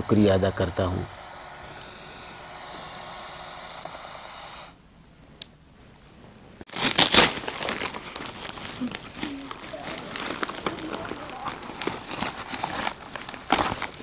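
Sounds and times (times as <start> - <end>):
steady hiss: 0.0 - 14.0
plastic bag crinkling and tearing: 6.7 - 14.0.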